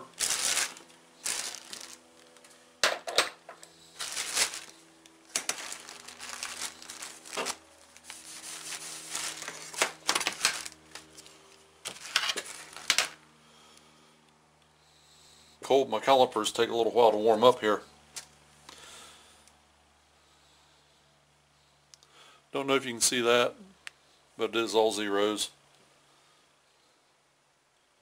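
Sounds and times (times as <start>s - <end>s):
plastic bag crinkling: 0.0s - 2.6s, 3.8s - 13.2s
low hum: 0.0s - 24.8s.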